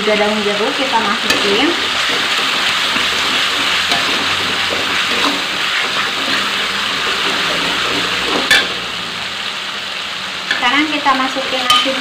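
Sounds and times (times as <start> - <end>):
paste sizzling in a wok: 0.0 - 12.0
metal spoon scraping: 1.2 - 8.8.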